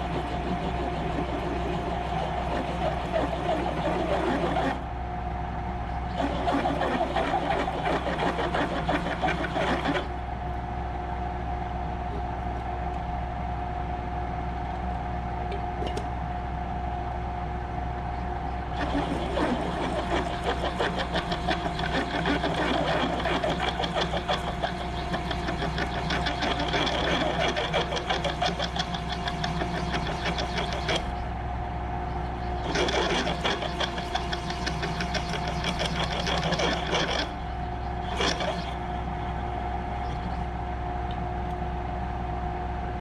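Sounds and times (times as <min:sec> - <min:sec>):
drill press motor hum: 0:00.0 - 0:10.6, 0:18.4 - 0:41.6
drill bit cutting metal: 0:18.8 - 0:31.2, 0:32.6 - 0:37.4, 0:38.0 - 0:38.8.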